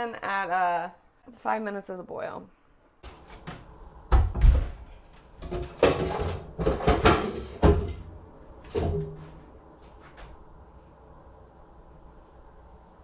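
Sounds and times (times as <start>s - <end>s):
faint steady hum: 0.0s - 13.0s
hard objects knocking and clattering: 3.0s - 9.4s.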